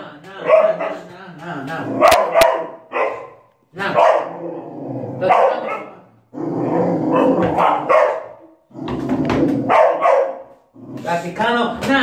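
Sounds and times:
dog barking: 0.4 - 1.1, 2.0 - 4.4, 5.2 - 6.1, 7.1 - 8.6, 9.6 - 10.6.

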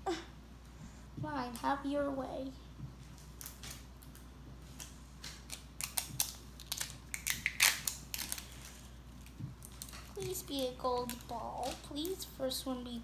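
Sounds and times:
plastic crackling as peeled open: 3.2 - 13.0.

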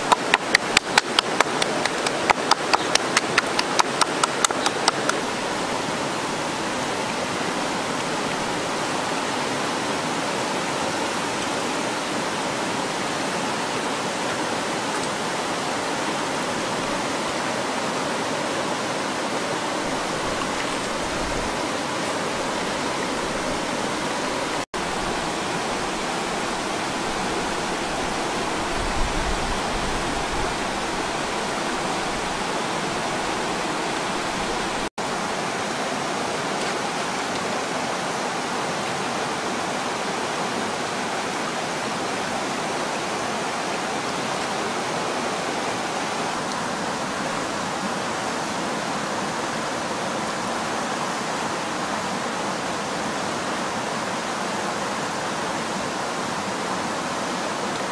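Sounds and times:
stream flowing: 0.0 - 57.9.

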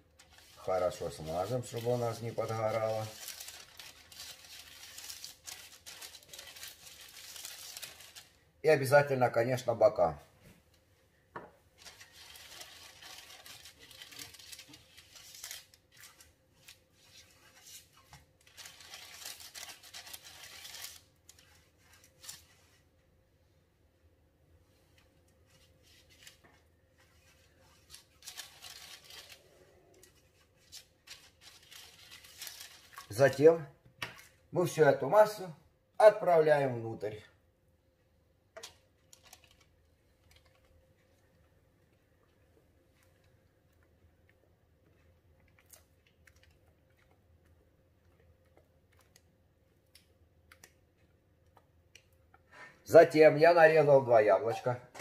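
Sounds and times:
pastry brush brushing a pan: 0.2 - 8.2.

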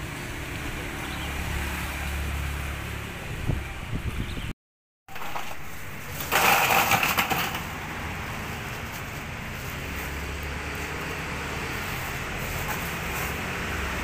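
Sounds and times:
plastic bag rustling: 5.1 - 7.8.

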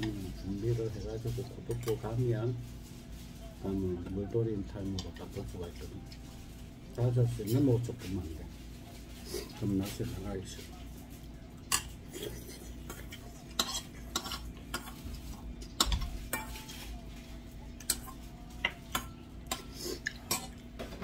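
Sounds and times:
spoon and chopsticks clinking on bowl: 15.8 - 16.9.

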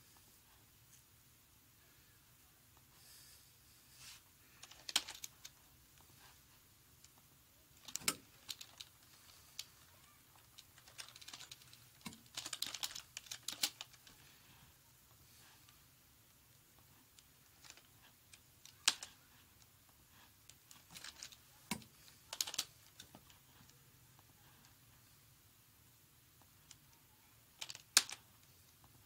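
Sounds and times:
computer keyboard typing: 10.8 - 13.9.

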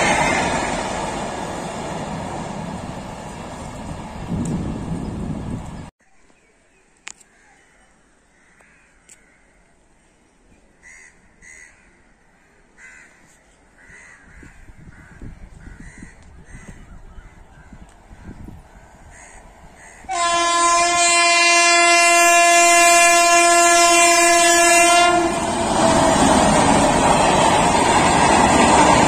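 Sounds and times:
loud train noise: 0.0 - 5.9, 17.8 - 29.0
low rumble of approaching train: 0.0 - 5.9, 14.6 - 29.0
crows cawing: 8.3 - 9.6, 10.8 - 17.7, 18.7 - 20.1.

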